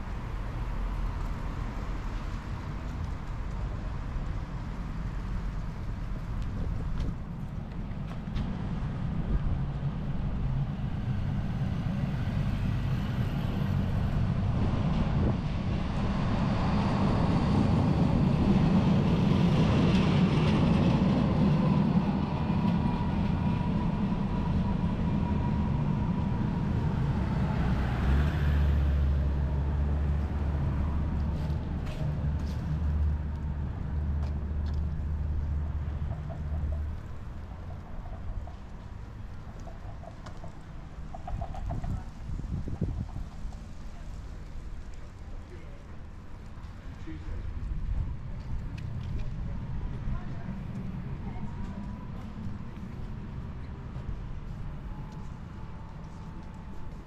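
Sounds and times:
low hum of vehicles: 0:00.0 - 0:57.0
tram motor whine: 0:09.6 - 0:31.7.

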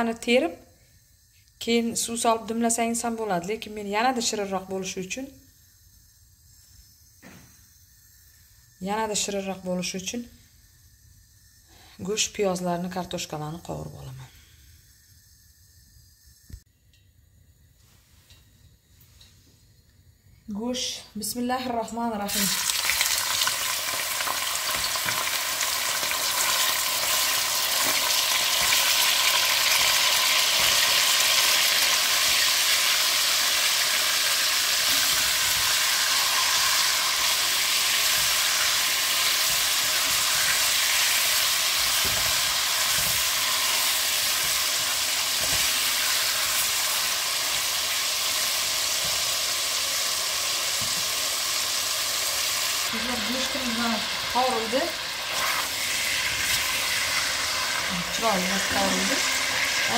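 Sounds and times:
meat sizzling in hot oil: 0:02.1 - 0:12.2, 0:22.2 - 0:59.9
spatula stirring meat: 0:34.8 - 0:47.6.

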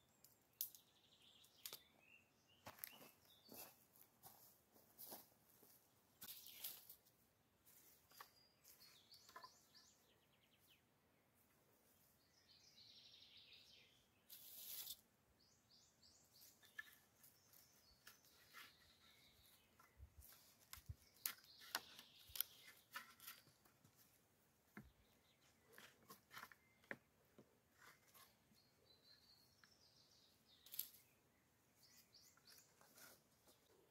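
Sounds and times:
small birds chirping: 0:00.0 - 0:07.0, 0:07.7 - 0:33.9
rustling scrape on leaves: 0:14.3 - 0:15.0.

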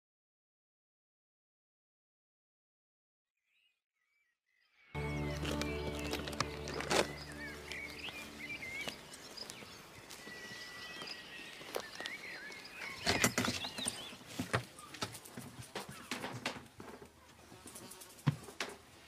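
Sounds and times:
held music chord: 0:05.0 - 0:09.9
footsteps: 0:05.0 - 0:18.9
birds chirping: 0:05.0 - 0:19.0.

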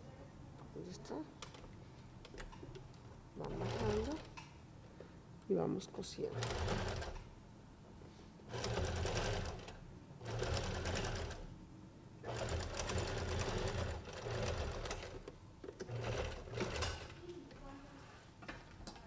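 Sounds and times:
sewing machine stitching: 0:03.5 - 0:04.3, 0:06.3 - 0:07.3, 0:08.5 - 0:11.5, 0:12.2 - 0:17.2.

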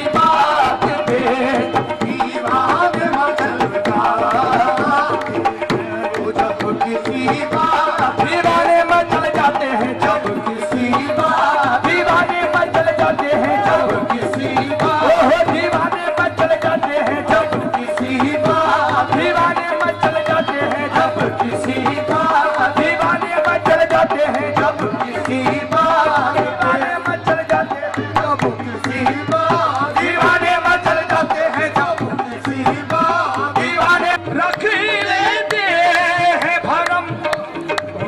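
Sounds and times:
harmonium melody: 0:00.0 - 0:38.0
tabla beat: 0:00.0 - 0:38.0.

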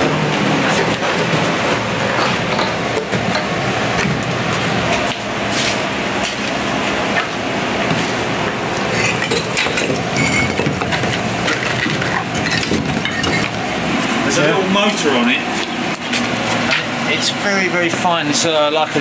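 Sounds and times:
steady background noise: 0:00.0 - 0:19.0
bricks clinking and knocking: 0:08.9 - 0:13.6.

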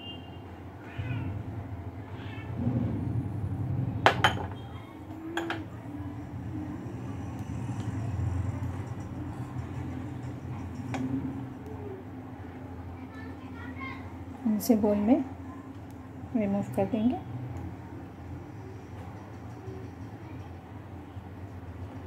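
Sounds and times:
cat meowing: 0:02.1 - 0:02.6.

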